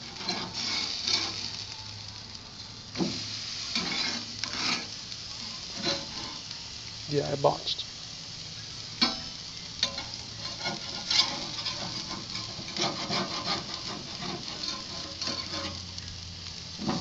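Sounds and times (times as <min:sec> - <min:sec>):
spatula scraping grill grate: 0:00.0 - 0:01.7, 0:02.9 - 0:06.5, 0:09.0 - 0:17.0
patties sizzling: 0:00.0 - 0:17.0.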